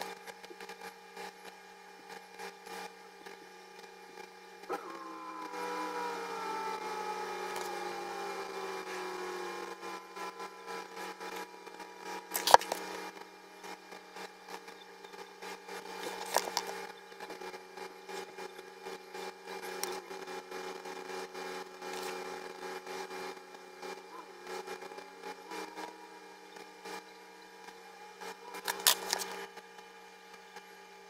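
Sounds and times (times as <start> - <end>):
steady hum: 0.0 - 31.0
droning tone falling in pitch: 4.7 - 12.3.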